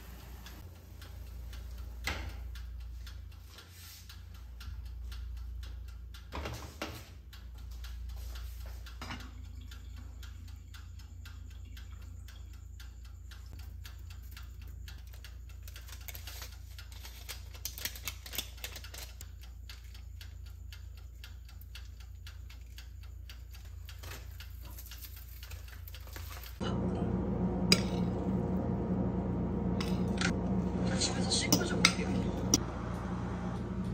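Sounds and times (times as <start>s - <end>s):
dial timer ticking: 0.1s - 26.6s
low hum: 26.6s - 33.9s.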